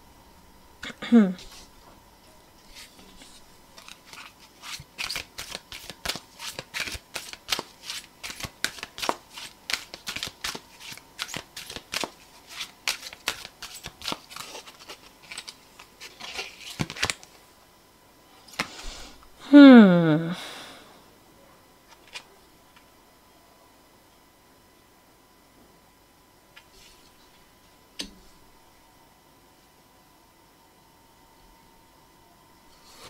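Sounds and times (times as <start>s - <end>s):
cards being shuffled: 2.6s - 17.4s, 21.9s - 22.3s.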